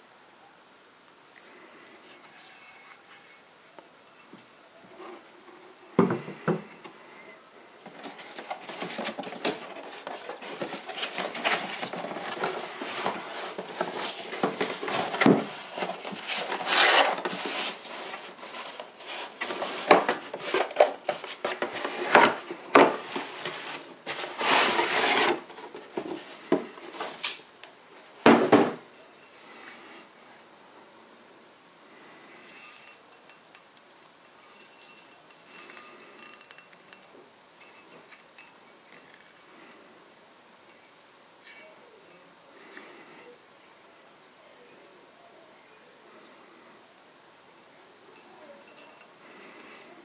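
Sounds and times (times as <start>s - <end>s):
cardboard and paper rustling: 7.8s - 28.9s.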